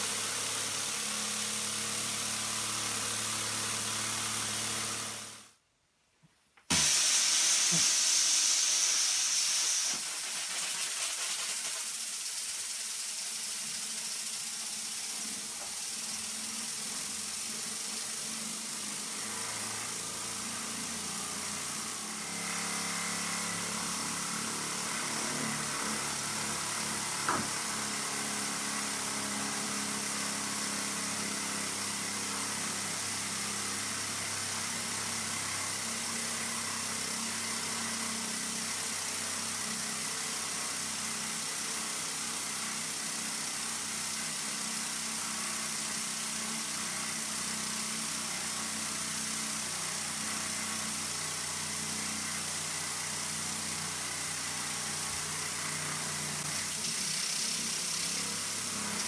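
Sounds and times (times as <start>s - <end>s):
steam jets hissing: 6.7s - 19.2s, 54.8s - 59.0s.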